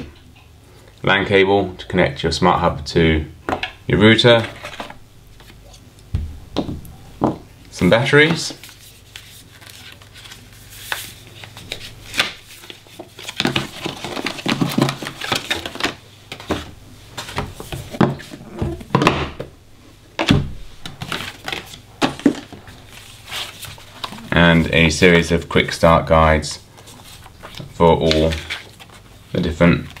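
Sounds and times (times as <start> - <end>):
paper rustling: 8.0 - 18.4, 20.9 - 24.9, 26.7 - 30.0.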